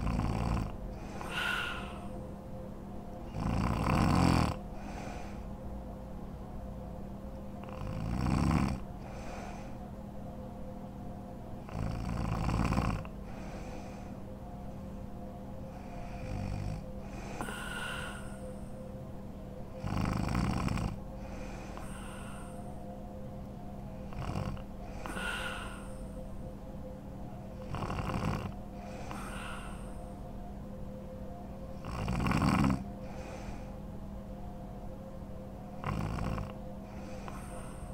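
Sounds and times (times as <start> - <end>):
woman snoring: 0.0 - 2.1, 3.3 - 5.4, 7.6 - 9.8, 11.6 - 14.1, 15.7 - 18.7, 19.8 - 22.7, 24.0 - 26.2, 27.6 - 30.1, 31.8 - 33.7, 35.8 - 37.9
steady low hum: 0.0 - 37.9.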